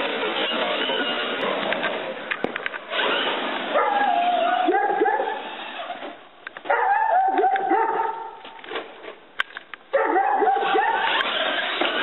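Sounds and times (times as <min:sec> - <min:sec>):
cat yowling: 0:03.8 - 0:05.4.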